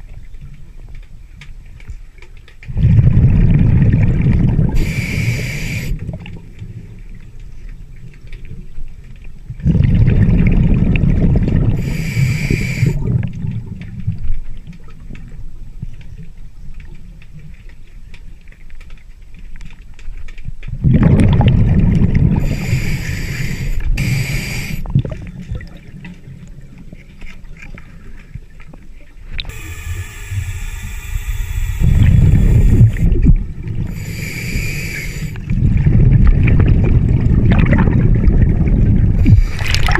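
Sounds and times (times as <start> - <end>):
gurgling rush of exhaled bubbles: 2.7 - 6.4, 9.6 - 13.8, 20.8 - 26.2, 31.6 - 39.9
hissing regulator inhalations: 4.8 - 6.0, 11.8 - 13.0, 22.4 - 24.9, 29.5 - 35.5.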